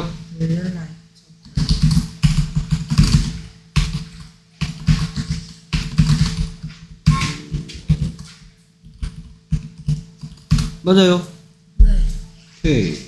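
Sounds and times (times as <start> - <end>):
computer keyboard typing: 1.4 - 10.8.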